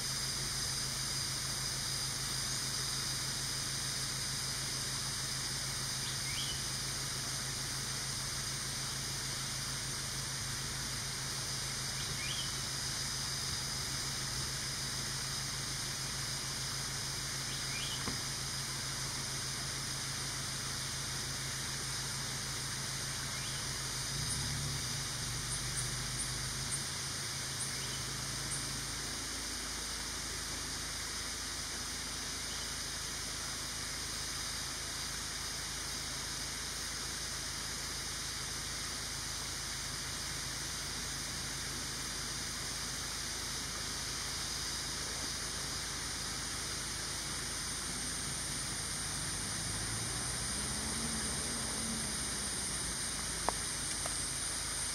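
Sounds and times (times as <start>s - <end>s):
outdoor hiss: 0.0s - 54.9s
thin high drone: 43.6s - 54.9s.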